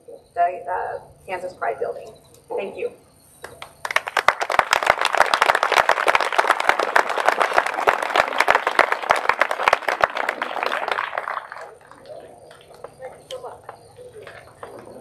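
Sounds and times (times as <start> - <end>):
audience applauding: 3.5 - 15.0.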